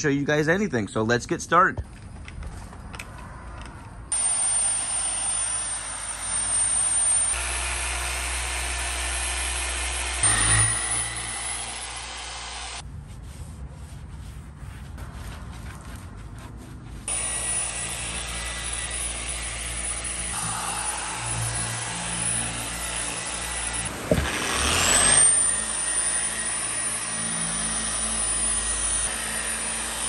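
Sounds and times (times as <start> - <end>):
polisher whining: 4.1 - 12.8, 17.1 - 30.0.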